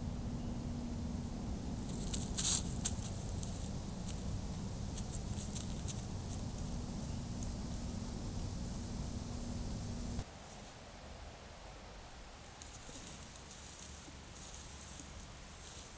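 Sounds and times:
camera hum and hiss: 0.0s - 15.9s
deer rustling through grass: 1.7s - 9.1s, 12.6s - 15.9s.

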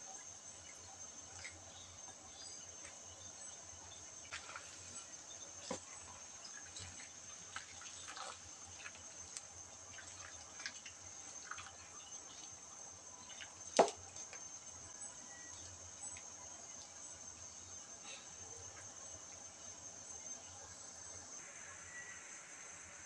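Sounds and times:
broth simmering in a pan: 0.0s - 23.0s
small pops and drips: 6.5s - 14.5s.

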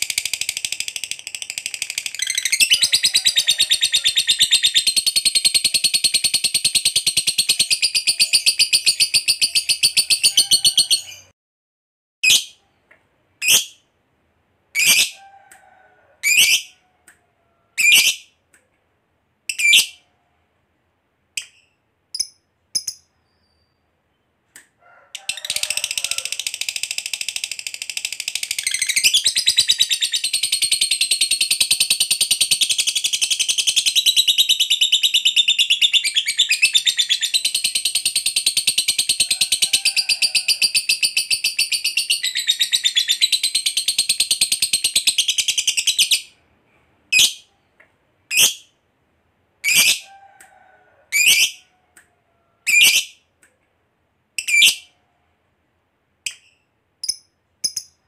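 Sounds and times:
bird chattering trill: 0.0s - 11.3s.

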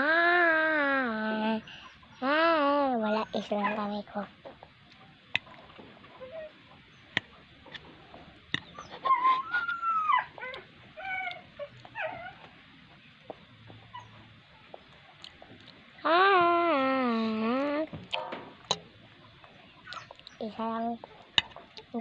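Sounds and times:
dog whining: 6.2s - 6.6s, 8.7s - 12.5s, 13.9s - 14.3s.

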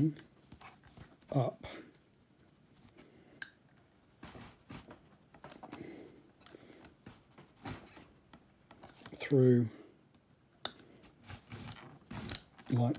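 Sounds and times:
knife scraping cork: 11.2s - 12.7s.

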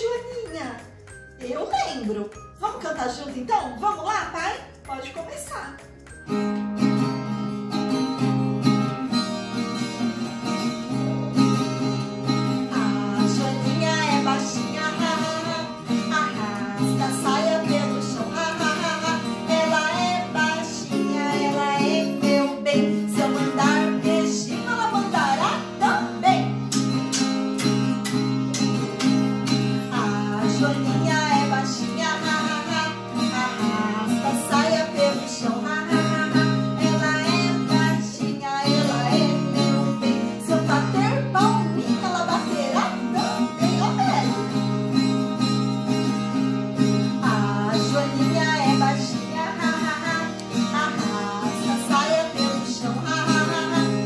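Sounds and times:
strummed acoustic guitar: 6.0s - 54.0s
woman singing: 12.4s - 26.7s, 29.5s - 44.7s, 46.8s - 54.0s.

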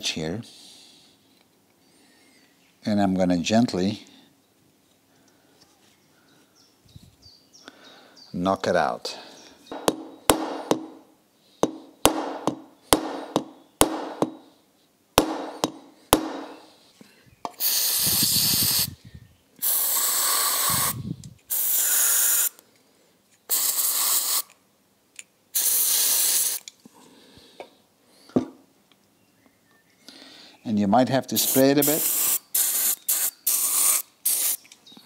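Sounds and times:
small hammer tapping metal: 9.7s - 11.0s
aerosol spray hissing: 17.6s - 19.0s, 19.6s - 22.6s, 23.5s - 24.5s, 25.6s - 26.7s, 31.3s - 34.6s.

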